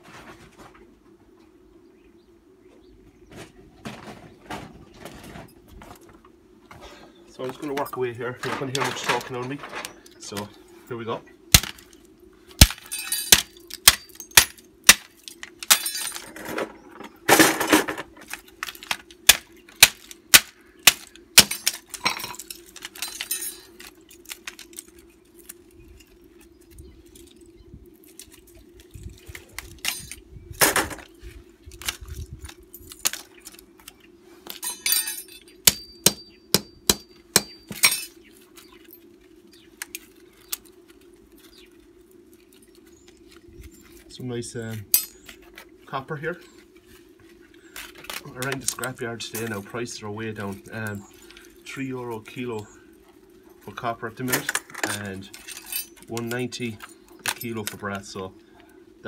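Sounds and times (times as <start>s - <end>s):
faint steady hum: 0.0s - 59.0s
hammer cracking plastic: 18.2s - 22.0s.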